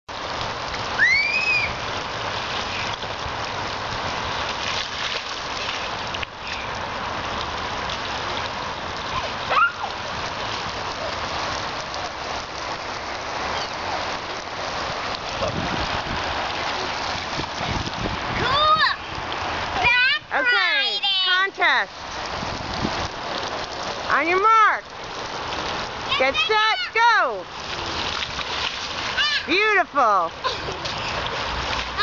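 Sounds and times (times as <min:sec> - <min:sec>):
water spraying from sprinkler jets: 0:00.1 - 0:32.0
child squealing: 0:01.0 - 0:01.8, 0:09.1 - 0:10.0, 0:29.2 - 0:29.5.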